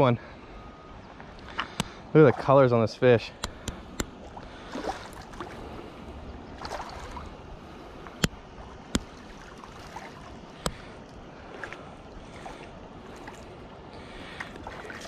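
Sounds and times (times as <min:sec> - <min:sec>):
river flowing: 0:01.4 - 0:15.0
fish splashing at water surface: 0:04.2 - 0:05.8.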